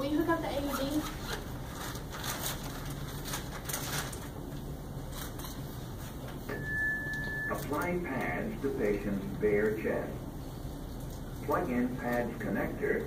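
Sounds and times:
steady electronic beep: 0:06.5 - 0:07.6.

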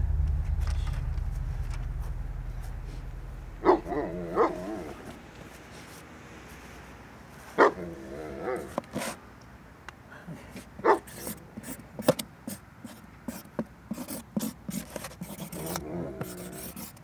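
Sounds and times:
low rumble: 0:00.0 - 0:05.4
dog barking: 0:03.6 - 0:04.7, 0:07.6 - 0:07.9, 0:10.8 - 0:11.2.

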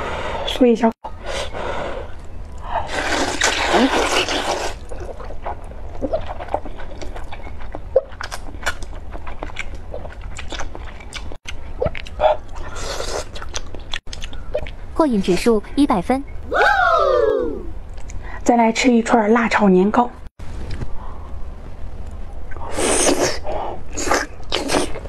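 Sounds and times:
person slurping noodles: 0:02.8 - 0:05.1, 0:22.6 - 0:25.0.

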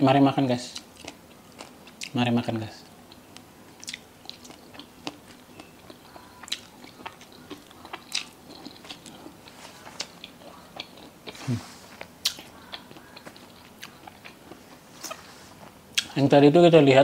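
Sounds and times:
person chewing: 0:00.8 - 0:02.2, 0:03.0 - 0:16.2
wet mouth clicks: 0:12.2 - 0:14.6.

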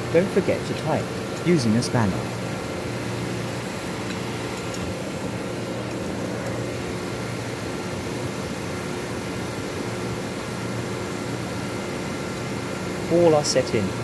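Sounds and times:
air-conditioning compressor drone: 0:00.0 - 0:14.0.

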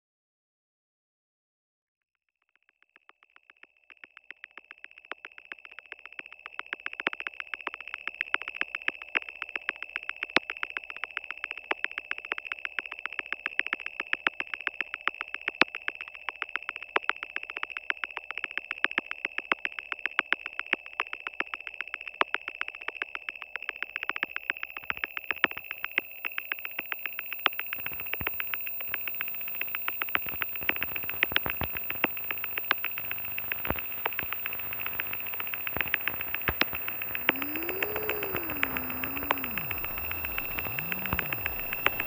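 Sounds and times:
rapid uneven clicking: 0:25.0 - 0:42.0
steady high-pitched electronic tone: 0:30.6 - 0:42.0.

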